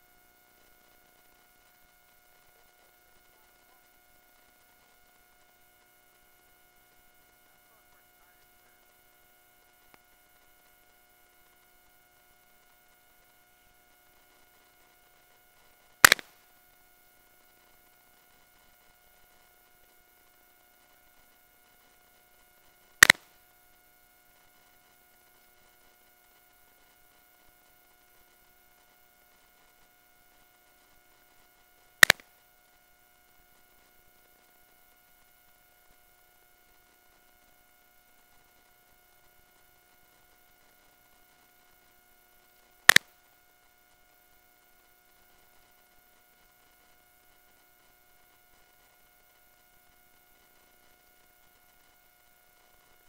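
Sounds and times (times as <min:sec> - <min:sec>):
faint electronic whine: 0:00.0 - 0:53.0
sharp loud clicks: 0:16.0 - 0:16.4, 0:23.0 - 0:23.3, 0:32.0 - 0:32.3, 0:42.9 - 0:43.1.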